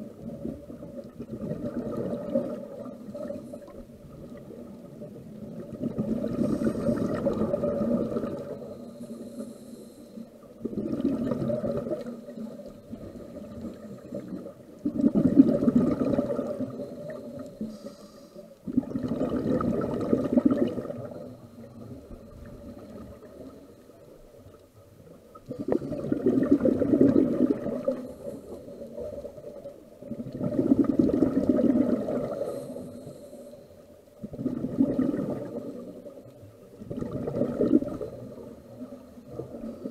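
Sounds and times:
exhaled bubbles underwater: 0.0s - 9.6s, 10.2s - 39.9s
faint regulator hiss: 2.4s - 10.7s, 11.5s - 14.8s, 16.4s - 18.8s, 20.7s - 26.0s, 27.7s - 30.2s, 32.1s - 34.3s.

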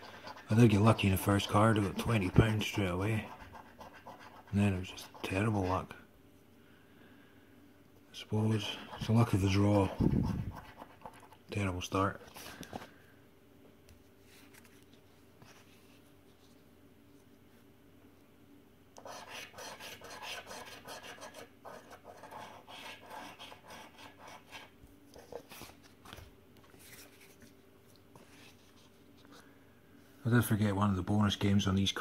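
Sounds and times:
scratchcard being scratched: 0.0s - 5.7s, 8.6s - 11.4s, 19.0s - 25.5s.

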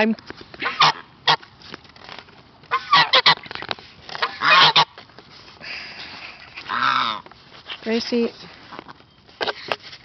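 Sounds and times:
goose honking: 0.6s - 1.4s, 2.7s - 3.5s, 4.1s - 5.0s, 6.6s - 7.2s.

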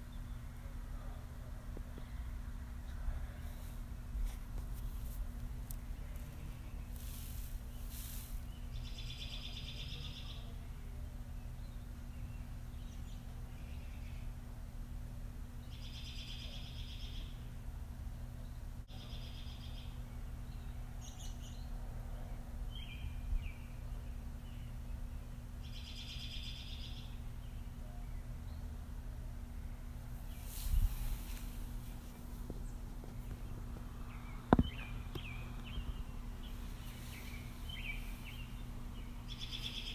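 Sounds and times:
steady low hum: 0.0s - 39.9s
bird chirps: 6.0s - 10.6s, 15.6s - 17.4s, 18.5s - 21.8s, 34.0s - 39.9s.

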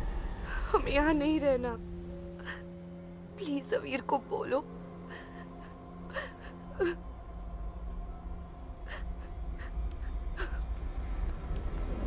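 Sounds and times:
low rumble: 0.0s - 12.0s
woman gasping and sobbing: 2.4s - 2.8s, 5.0s - 7.1s, 8.8s - 10.7s.

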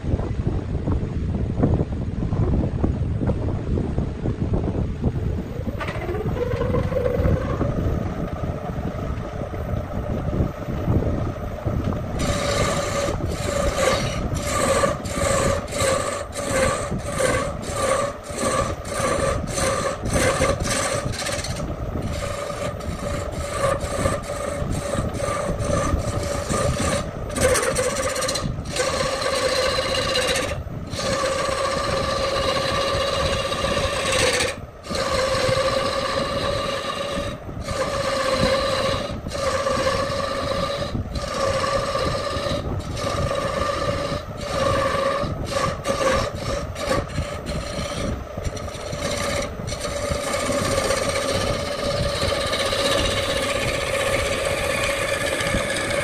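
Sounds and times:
lathe tool cutting wood: 5.7s - 8.5s, 12.1s - 56.0s.

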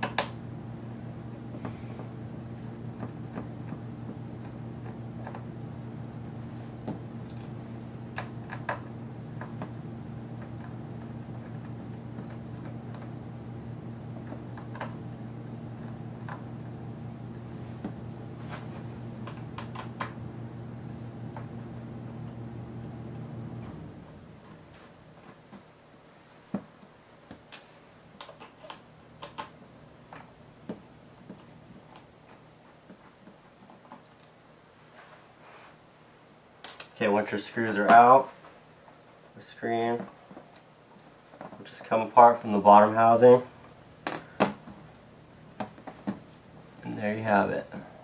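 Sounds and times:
steady low hum: 0.0s - 28.2s.

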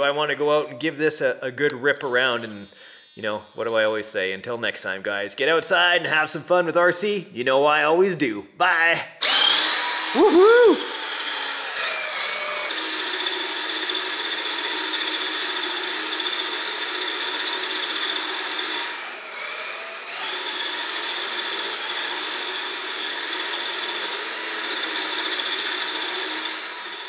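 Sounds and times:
electric toy truck motor whine: 9.2s - 27.0s.

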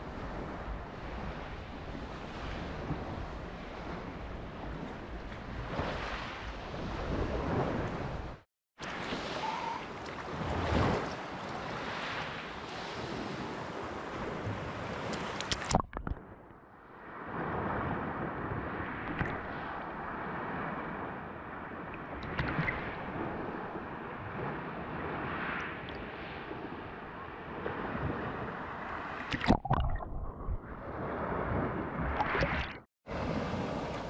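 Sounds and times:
water lapping and sloshing: 0.0s - 34.0s
water splash: 15.0s - 16.3s, 29.1s - 30.7s, 32.0s - 32.8s.

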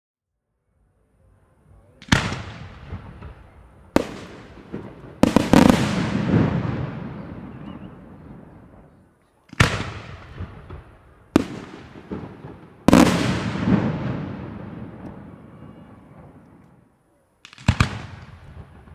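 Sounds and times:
rolling echo: 2.0s - 18.9s.

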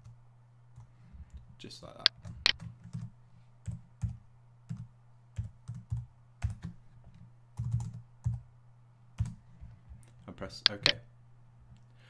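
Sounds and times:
computer keyboard typing: 2.2s - 6.8s, 7.6s - 8.4s, 9.2s - 9.4s, 10.7s - 11.0s.

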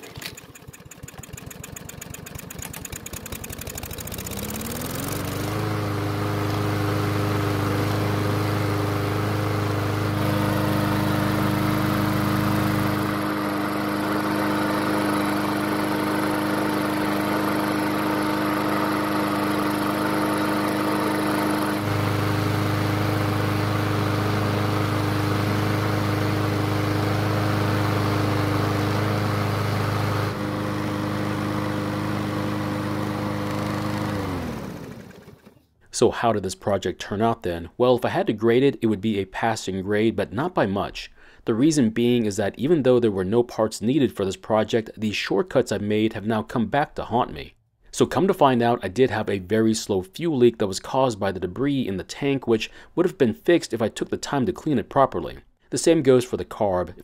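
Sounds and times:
lawn mower engine running: 0.0s - 35.7s.

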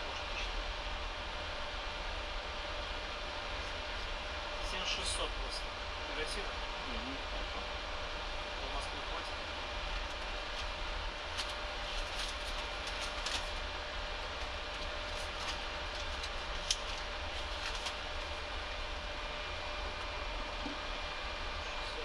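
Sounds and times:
cooling fans humming: 0.0s - 22.0s
paper rustling: 10.5s - 18.4s.

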